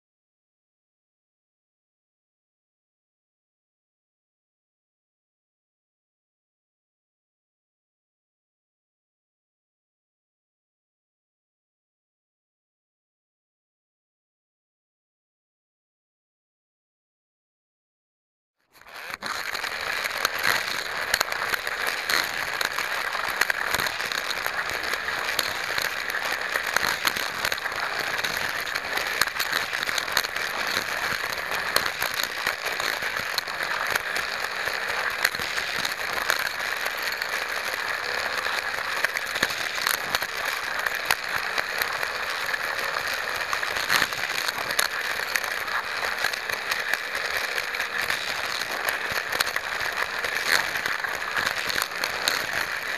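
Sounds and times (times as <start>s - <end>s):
toy car motor whir: 18.6s - 52.9s
clicks and rattles on track: 18.8s - 52.9s.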